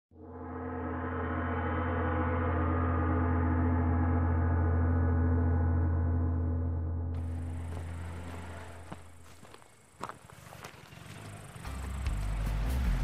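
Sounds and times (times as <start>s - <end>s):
deep gong-like drone: 0.2s - 8.7s.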